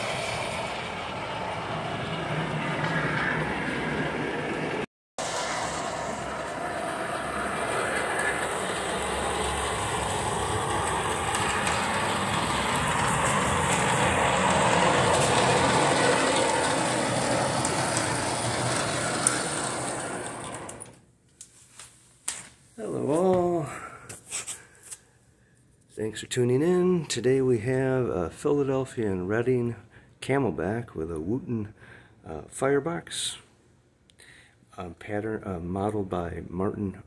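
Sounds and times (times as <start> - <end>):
model steam locomotive on metal track: 0.0 - 21.0.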